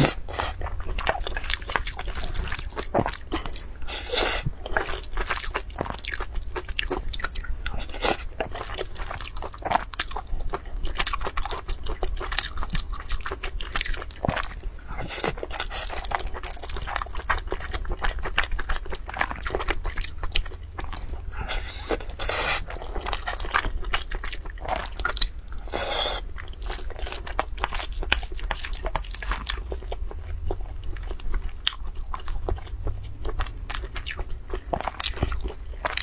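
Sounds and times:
chewing with mouth clicks: 0.0 - 36.0
food crunching: 0.0 - 36.0.

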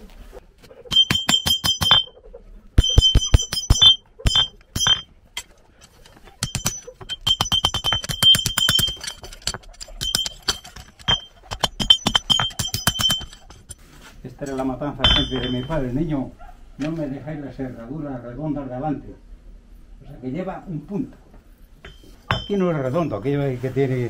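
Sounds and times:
hammer striking metal on anvil: 0.9 - 2.1, 2.8 - 13.8, 14.5 - 15.9, 21.8 - 22.7.

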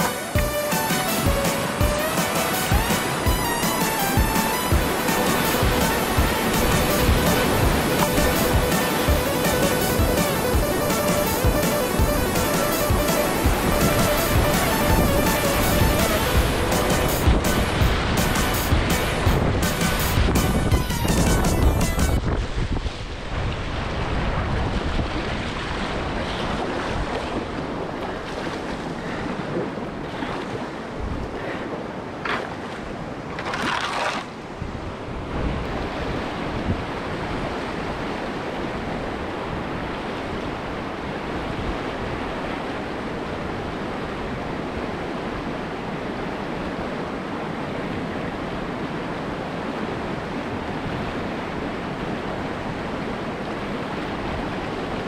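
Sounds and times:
sharp water splashes: 0.0 - 20.4, 32.3 - 34.4
whitewater rapids rushing: 0.0 - 32.2.

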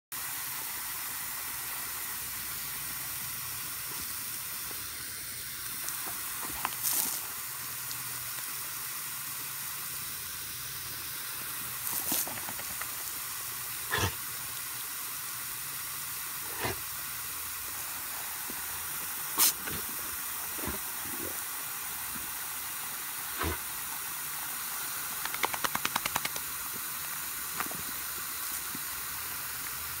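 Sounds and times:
hose nozzle spraying water: 0.2 - 30.0
sharp clicks and taps: 25.2 - 26.5.

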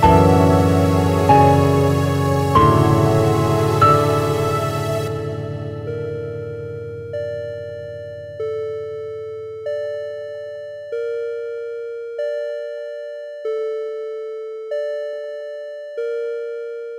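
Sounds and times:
low sustained tone: 0.0 - 9.6.

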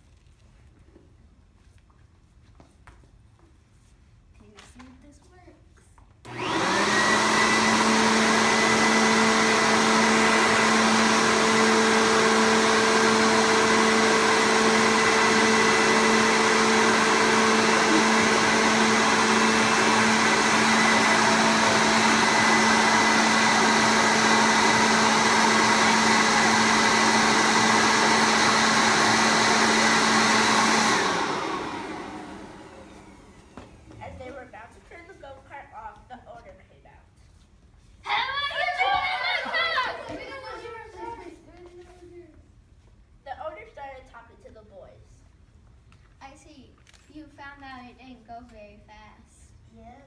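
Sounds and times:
electric leaf blower running: 6.2 - 34.6.

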